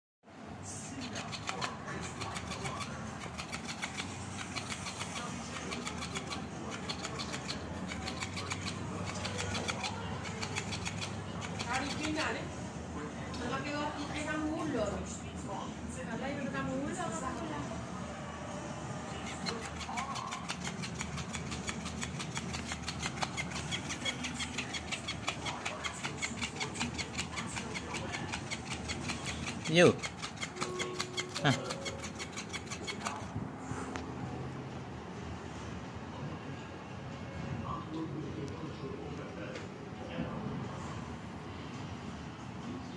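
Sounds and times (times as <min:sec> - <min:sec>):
rapid clicking: 0:01.0 - 0:12.3, 0:19.2 - 0:33.3
toy motor ticking: 0:01.0 - 0:12.4, 0:19.2 - 0:33.3.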